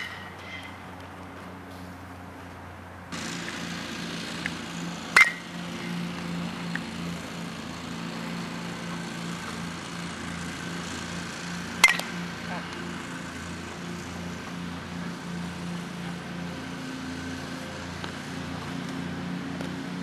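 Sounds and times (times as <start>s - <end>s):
metal bat hitting ball: 5.1s - 5.6s, 11.8s - 12.6s.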